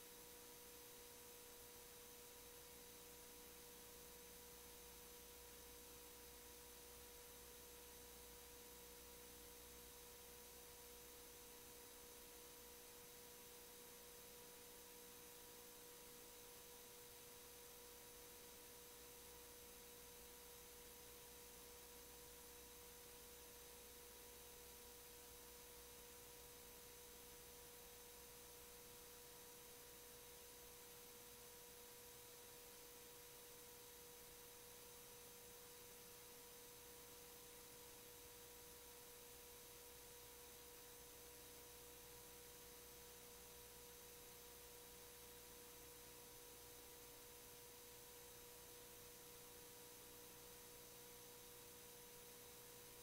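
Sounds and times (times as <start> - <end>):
faint hum tone: 0.0 - 53.0.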